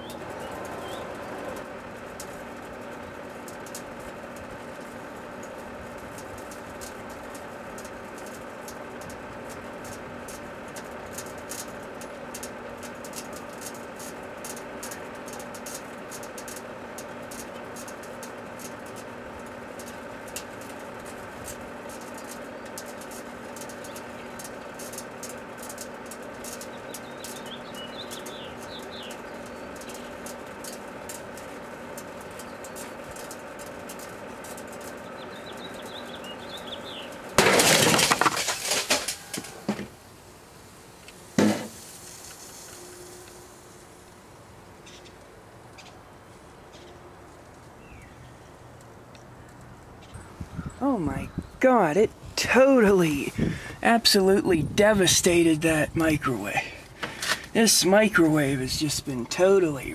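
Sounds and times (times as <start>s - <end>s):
crackling ticks: 0.0s - 37.3s, 48.8s - 50.2s
microwave oven humming: 0.0s - 38.0s, 38.6s - 59.9s
debris breaking and rattling: 36.9s - 40.0s
aerosol can exploding: 41.3s - 42.8s.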